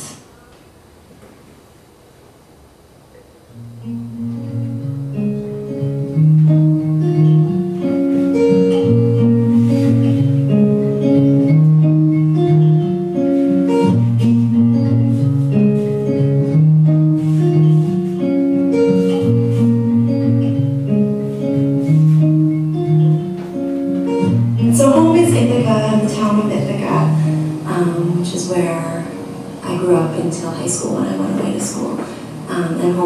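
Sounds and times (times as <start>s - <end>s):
plucked guitar music: 3.2s - 33.0s.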